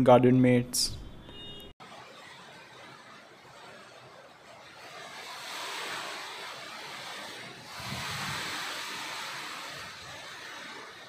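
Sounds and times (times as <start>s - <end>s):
rain falling: 1.8s - 11.0s
wind rumble on microphone: 4.6s - 11.0s.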